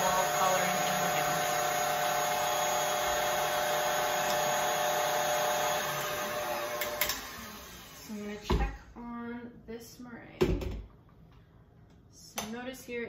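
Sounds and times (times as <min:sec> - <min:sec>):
stand mixer whisking: 0:00.0 - 0:08.1.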